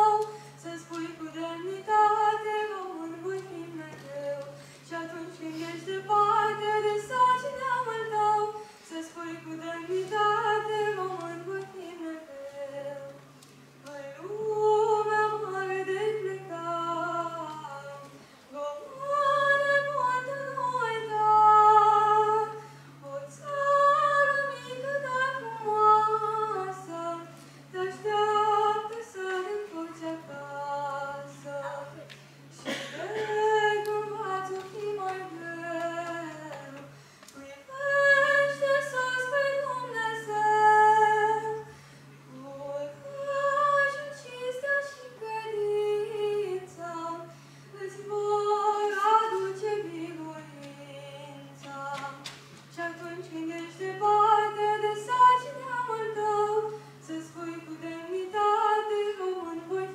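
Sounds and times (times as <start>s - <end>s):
boy singing into a microphone: 27.9s - 32.1s.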